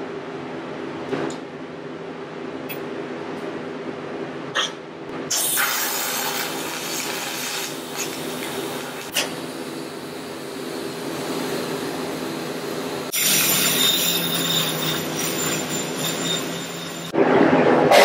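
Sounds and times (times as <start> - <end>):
welder arc crackling hiss: 5.3 - 11.8.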